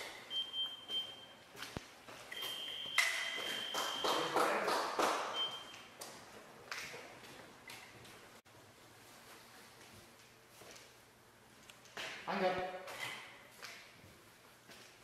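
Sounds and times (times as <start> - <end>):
scoring machine beeps: 0.3 - 1.4, 2.3 - 4.3.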